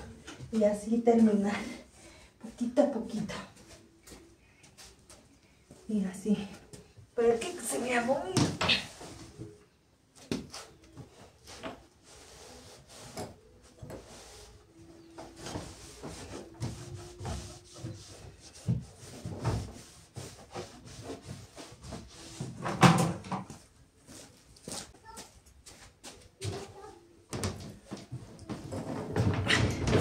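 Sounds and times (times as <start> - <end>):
cloth wiping furniture: 12.0 - 13.2, 14.0 - 22.4
furniture knocking and clattering: 15.2 - 23.6, 27.3 - 30.0.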